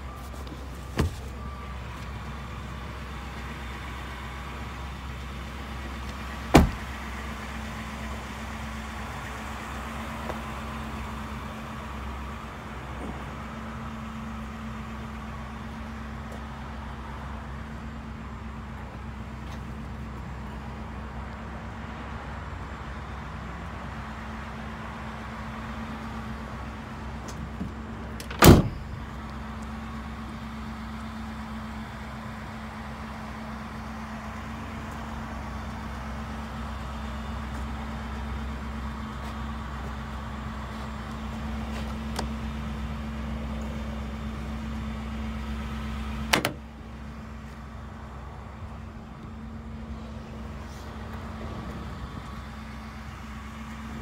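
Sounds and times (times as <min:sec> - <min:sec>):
tailgate slamming: 0:00.8 - 0:01.4, 0:06.4 - 0:07.0, 0:27.3 - 0:29.0, 0:46.2 - 0:46.7.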